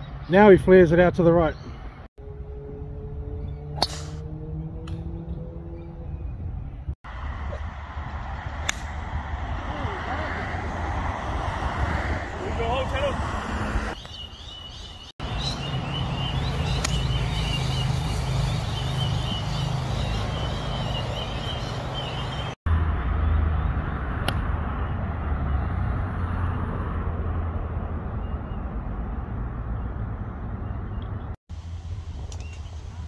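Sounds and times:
golf club striking ball: 3.8 - 4.2, 8.6 - 9.0
wind rumbling on microphone: 4.5 - 22.6.

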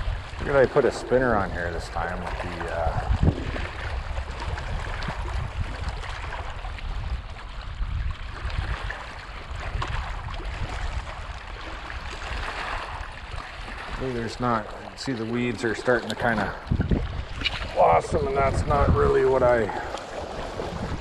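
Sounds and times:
waves lapping on rocks: 0.0 - 21.0
wind buffeting microphone: 0.0 - 21.0.

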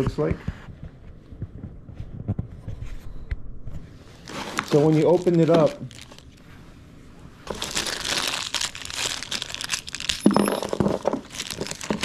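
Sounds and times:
plastic bag crinkling: 4.2 - 6.4, 7.5 - 12.0
metal parts handled: 10.1 - 12.0.

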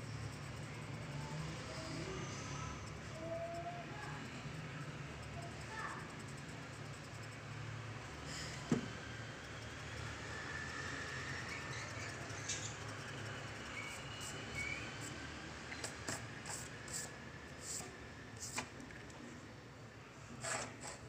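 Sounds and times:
pencil scratching on paper: 13.7 - 18.7, 20.4 - 21.0.

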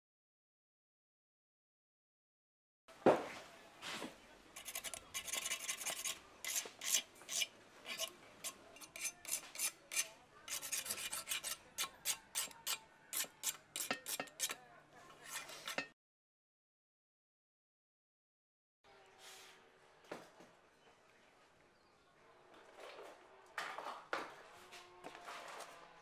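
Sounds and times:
metal tool scraping sealant: 4.6 - 14.6, 15.2 - 15.9.

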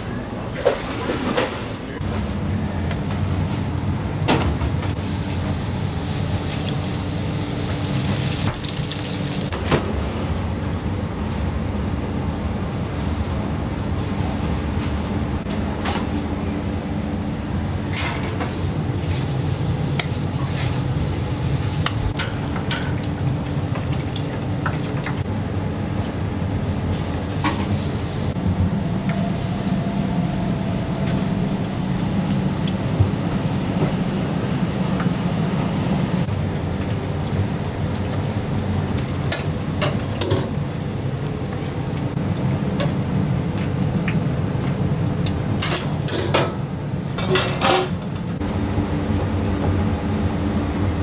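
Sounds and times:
kitchen machinery humming: 0.0 - 51.0
utensils and dishes clinking: 47.2 - 48.3.

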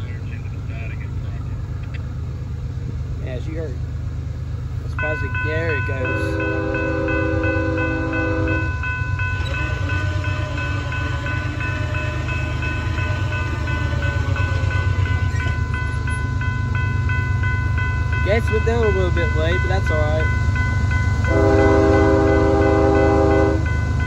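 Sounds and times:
crossing bell ringing: 3.4 - 24.0
locomotive air horn: 6.0 - 15.1, 21.2 - 23.8.

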